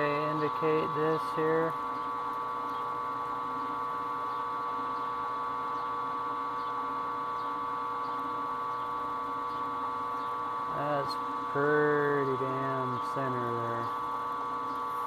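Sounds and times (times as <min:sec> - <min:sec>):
milling machine spindle hum: 0:00.0 - 0:15.0.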